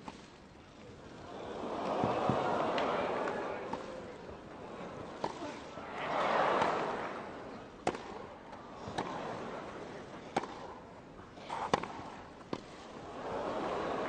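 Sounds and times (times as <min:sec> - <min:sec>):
crowd murmur: 0:00.8 - 0:14.0
tennis ball hit by rackets: 0:05.0 - 0:05.7, 0:06.6 - 0:07.0, 0:07.7 - 0:09.2, 0:10.2 - 0:10.8, 0:11.5 - 0:12.8.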